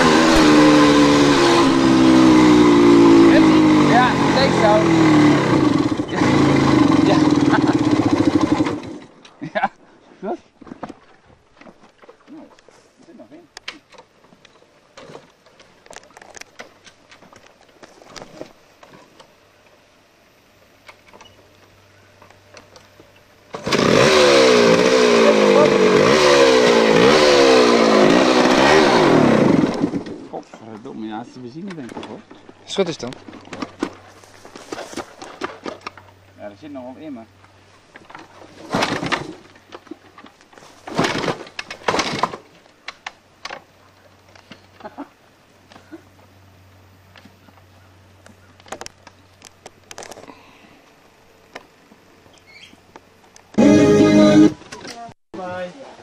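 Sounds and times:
dirt bike kick-start clatter: 0:03.4 - 0:09.2, 0:23.5 - 0:30.3, 0:38.1 - 0:39.5, 0:40.7 - 0:43.6
clicks and knocks from dirt bike: 0:31.6 - 0:36.1, 0:37.9 - 0:44.9.

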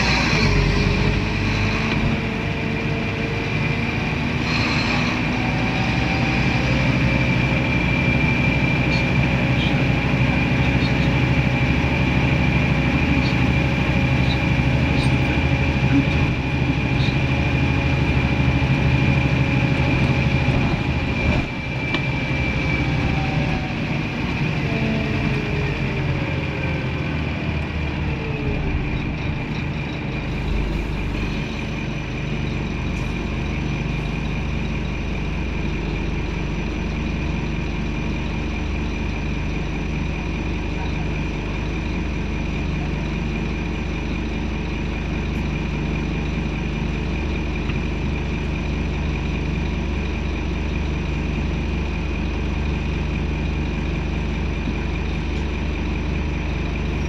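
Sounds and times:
bus diesel engine running: 0:00.0 - 0:57.0.

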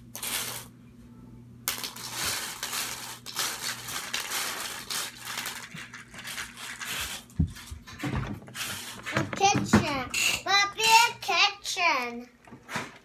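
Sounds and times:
plastic toy pieces clattering: 0:01.7 - 0:07.0.

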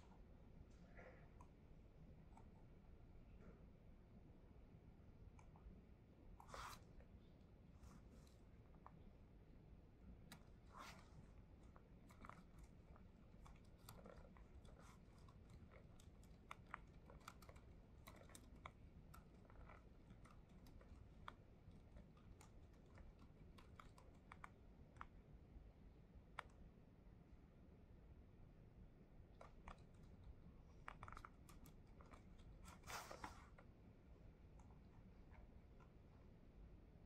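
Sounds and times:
low room hum: 0:00.0 - 0:37.0
laptop keyboard typing: 0:10.3 - 0:25.2, 0:29.4 - 0:33.3.

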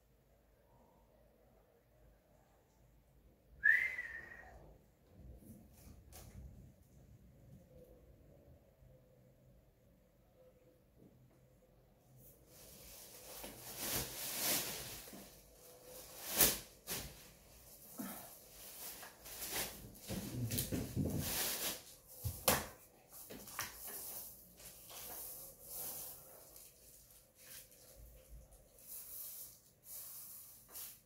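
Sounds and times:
soft rustling and hissing: 0:12.1 - 0:31.0.

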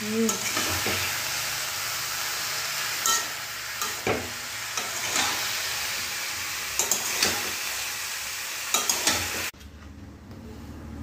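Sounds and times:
vegetables sizzling in pan: 0:00.0 - 0:09.5
metal spatula scraping pan: 0:03.0 - 0:05.8, 0:06.7 - 0:07.7.

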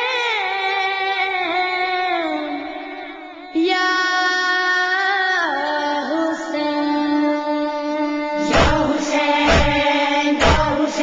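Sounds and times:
boy singing a lament: 0:00.0 - 0:11.0
heavy thumps: 0:08.5 - 0:11.0.

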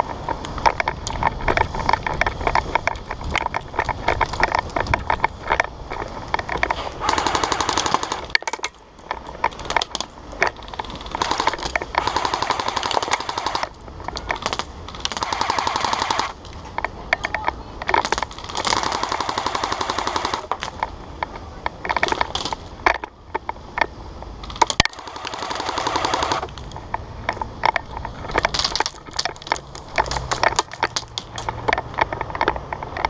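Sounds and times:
airsoft guns firing bursts: 0:07.0 - 0:08.6, 0:10.6 - 0:16.4, 0:18.0 - 0:20.8, 0:24.9 - 0:26.5
single shots cracking: 0:07.0 - 0:08.6, 0:10.6 - 0:16.5, 0:18.0 - 0:20.8, 0:24.7 - 0:26.5.

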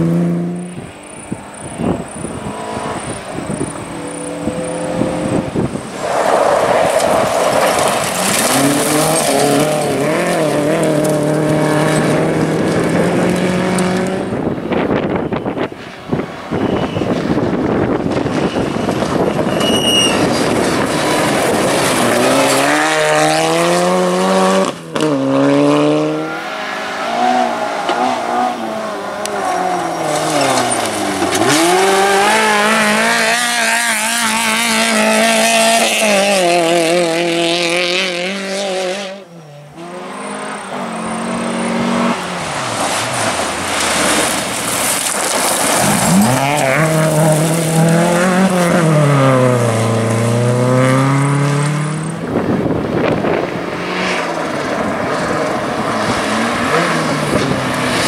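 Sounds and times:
rally car engine revving: 0:00.0 - 0:58.0
tyres hissing on gravel: 0:05.9 - 0:10.5, 0:42.4 - 0:48.1.

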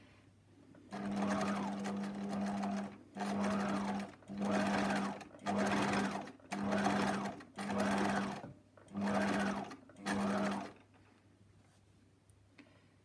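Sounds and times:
sewing machine stitching: 0:00.9 - 0:10.9.

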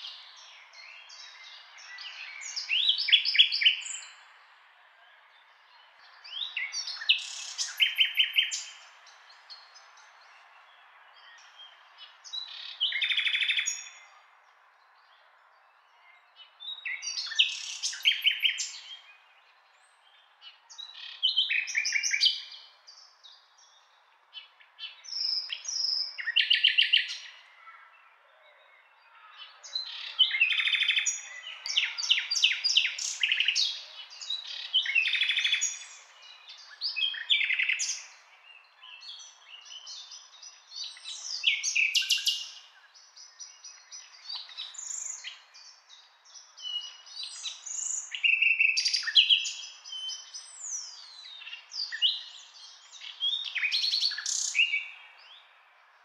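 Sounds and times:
nightingale singing: 0:00.0 - 0:04.2, 0:05.7 - 0:14.2, 0:16.0 - 0:27.4, 0:29.5 - 0:55.6.

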